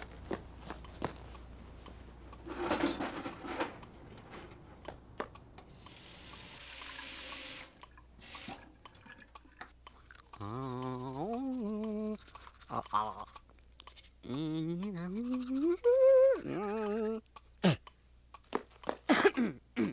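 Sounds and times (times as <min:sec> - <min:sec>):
man humming: 0:10.4 - 0:13.4, 0:14.2 - 0:17.8.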